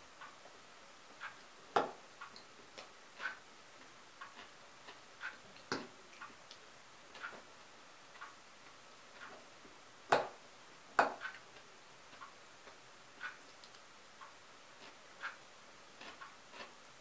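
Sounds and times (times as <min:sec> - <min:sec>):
faint clock ticking: 0:00.0 - 0:17.0.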